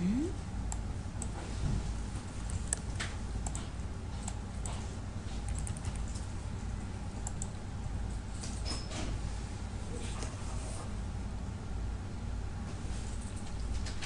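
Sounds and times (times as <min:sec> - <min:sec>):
steady low hum: 0:00.0 - 0:14.0
keyboard typing: 0:05.5 - 0:06.3, 0:07.2 - 0:07.6.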